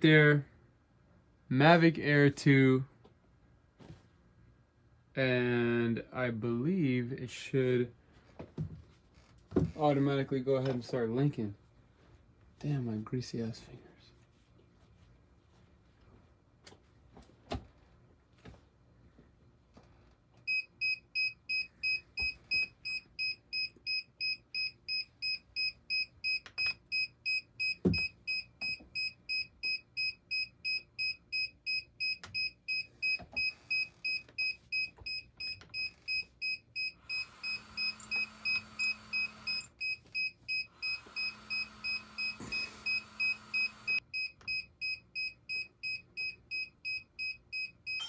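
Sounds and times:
faint hum and hiss: 0.0 - 27.6
rapid high beeping: 29.0 - 48.0.

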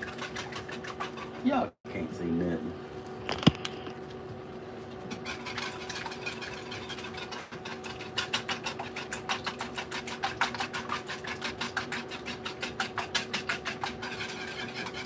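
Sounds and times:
whisk clicking against bowl: 5.1 - 15.0.

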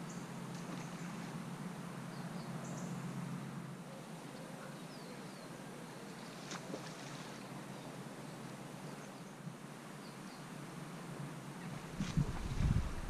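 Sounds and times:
river water flowing: 5.5 - 13.0.

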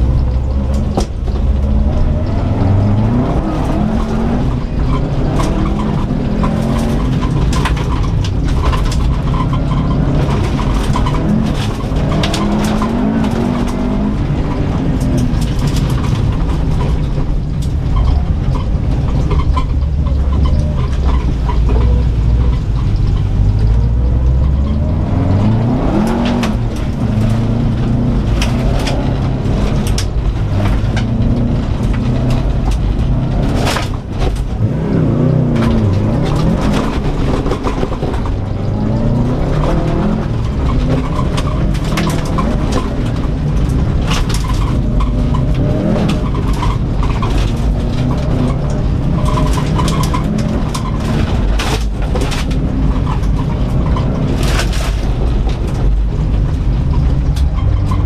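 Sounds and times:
car engine revving: 0.0 - 58.0
gravel hitting car underside: 0.0 - 58.0.

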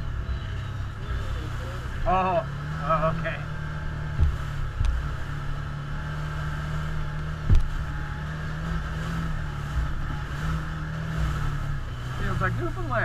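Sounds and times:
off-road vehicle engine: 0.0 - 13.0
vehicle thumping over bumps: 4.0 - 5.3, 6.9 - 11.9.

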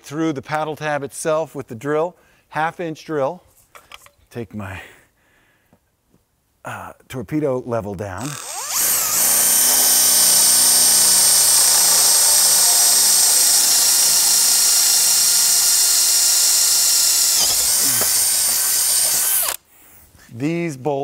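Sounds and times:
drill boring through wood: 8.2 - 19.6.

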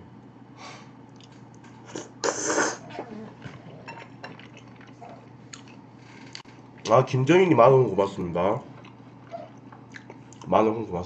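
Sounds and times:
slurping noodles: 1.9 - 5.0
chewing: 2.8 - 6.9, 8.7 - 10.5.

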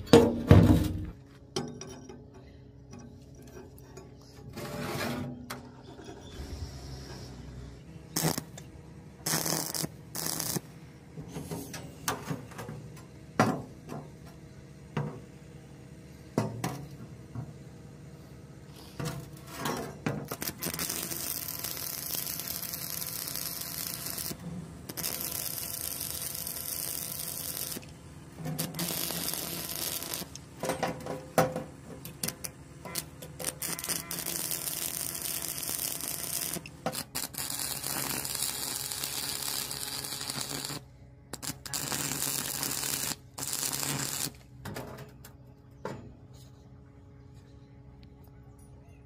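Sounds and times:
welding arc crackling and hissing: 8.2 - 8.6, 9.2 - 10.7, 20.2 - 27.9, 28.6 - 30.5, 32.2 - 44.4.

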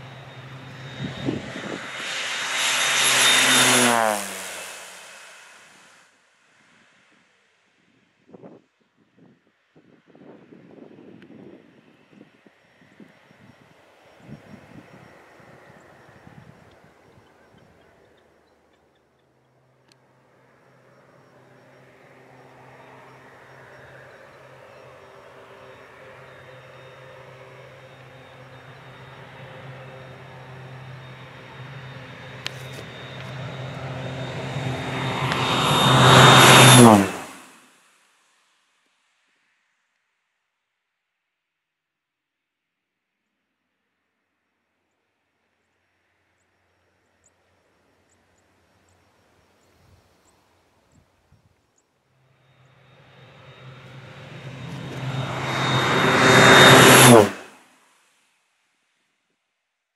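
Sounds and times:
high whine: 0.0 - 6.0, 19.8 - 37.6, 52.4 - 57.5
propeller plane engine passing: 0.0 - 6.0, 10.2 - 37.6, 52.3 - 57.6.

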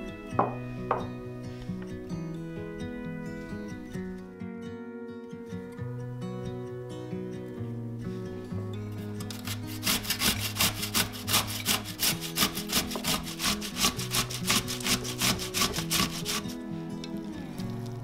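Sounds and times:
food grated on a grater: 9.3 - 16.6.

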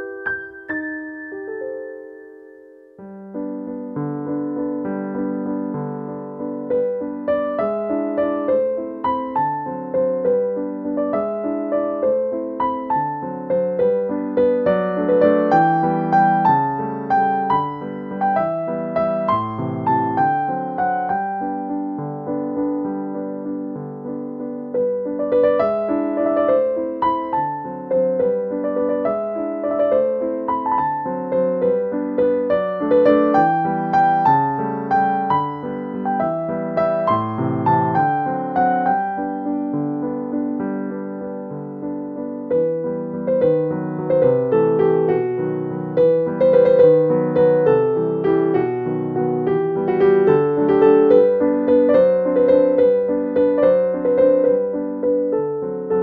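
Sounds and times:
gentle piano melody: 0.0 - 56.0.

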